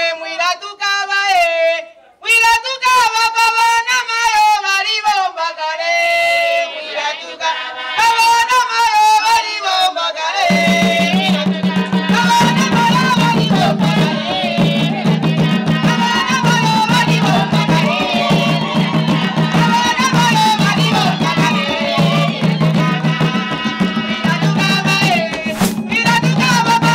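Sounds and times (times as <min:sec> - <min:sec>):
women singing: 0:00.0 - 0:26.9
wooden hand drums beating: 0:10.5 - 0:26.9.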